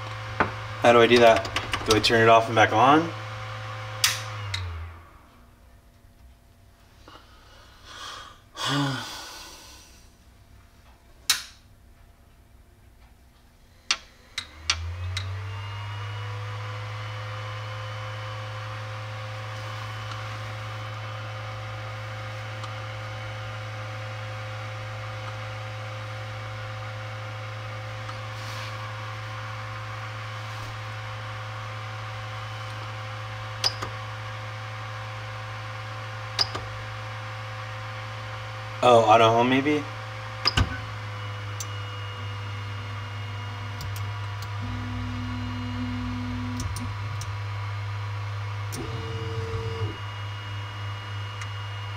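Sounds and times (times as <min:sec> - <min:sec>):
cooling fans whirring: 0:00.0 - 0:51.9
clicks: 0:43.8 - 0:47.4.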